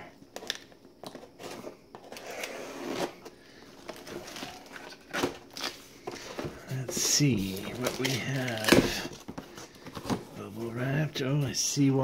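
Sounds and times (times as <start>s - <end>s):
cardboard scraping and rustling: 1.1s - 10.8s
plastic pouch rustling: 3.6s - 10.6s.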